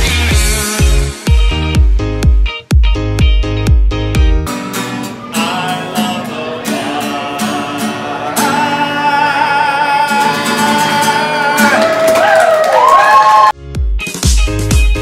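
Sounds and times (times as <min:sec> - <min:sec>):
strummed acoustic guitar: 0:04.4 - 0:11.8
man singing: 0:05.1 - 0:12.2.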